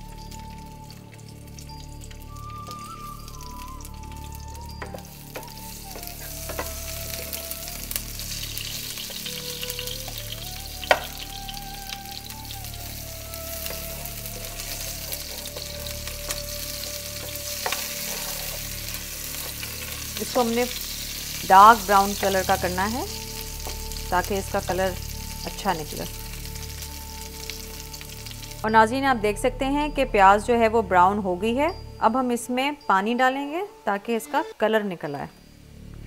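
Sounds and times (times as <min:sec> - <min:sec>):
onion sizzling in oil: 0:00.0 - 0:30.5
spoon clicking on pot: 0:10.9 - 0:11.2.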